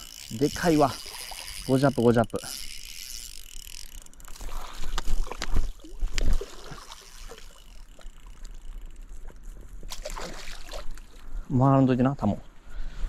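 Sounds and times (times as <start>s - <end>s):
water sloshing: 0.0s - 11.4s
fish splashing at surface: 4.3s - 8.4s, 9.9s - 11.2s.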